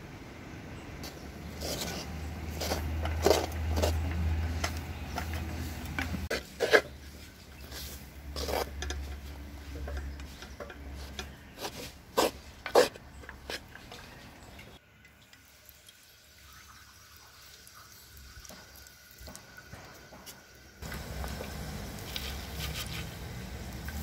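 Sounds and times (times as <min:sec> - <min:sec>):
wooden spoon scraping clay pot: 0:01.0 - 0:14.8, 0:22.1 - 0:23.2.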